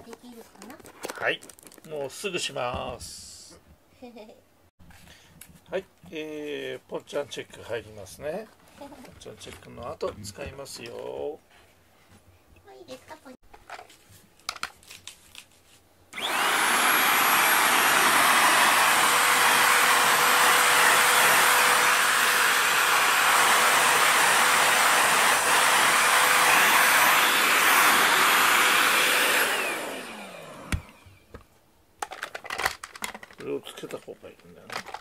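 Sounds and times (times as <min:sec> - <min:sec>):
handheld vacuum cleaner running: 0:16.2 - 0:31.2
motor winding down: 0:16.2 - 0:31.2.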